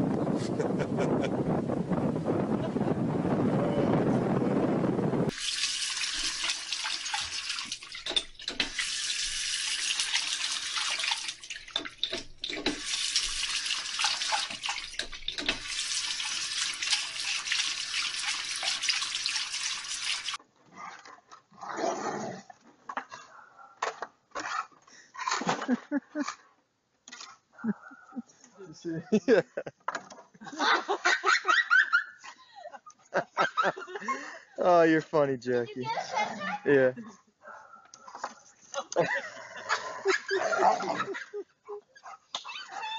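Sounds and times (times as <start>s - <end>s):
wind rumble on microphone: 0.0s - 5.3s
tap water splashing into sink: 5.3s - 20.4s.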